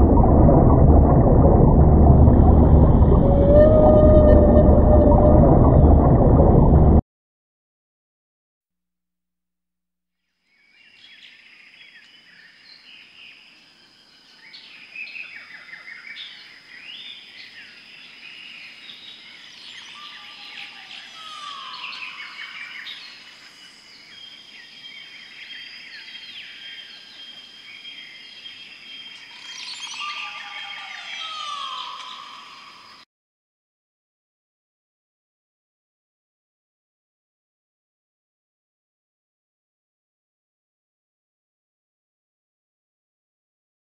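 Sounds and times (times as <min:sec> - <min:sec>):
birds chirping and calling: 0:29.3 - 0:32.6
falling whistled bird calls: 0:29.3 - 0:32.8.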